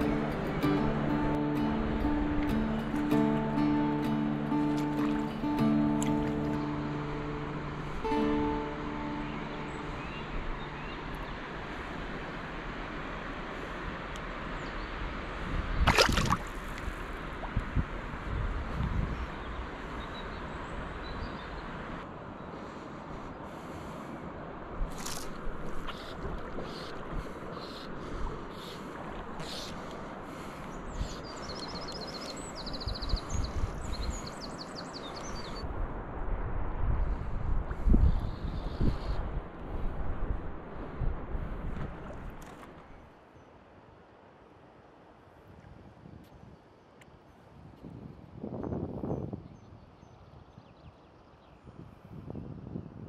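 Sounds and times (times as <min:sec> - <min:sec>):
songbird singing: 0:00.0 - 0:12.5, 0:14.2 - 0:15.1, 0:19.0 - 0:22.7, 0:25.0 - 0:35.8, 0:37.7 - 0:39.8, 0:48.5 - 0:51.8
river water flowing: 0:00.0 - 0:47.7
wind buffeting microphone: 0:15.0 - 0:21.9, 0:23.2 - 0:43.1, 0:47.4 - 0:53.0.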